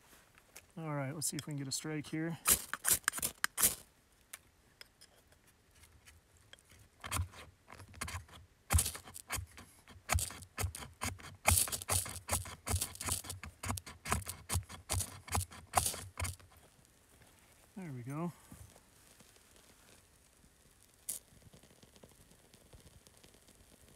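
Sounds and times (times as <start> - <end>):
knife scraping ferro rod: 7.0 - 16.6.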